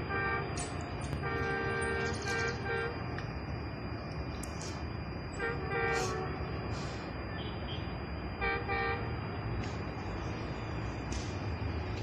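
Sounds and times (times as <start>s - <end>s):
low train rumble: 0.0s - 12.0s
train horn toots: 0.1s - 0.6s, 1.2s - 3.0s, 5.4s - 6.7s, 7.4s - 9.1s.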